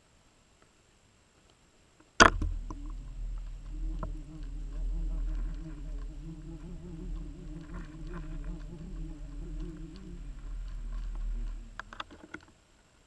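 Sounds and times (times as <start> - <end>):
faint ticks: 1.4 - 12.6
underwater boat motor drone: 2.2 - 12.3.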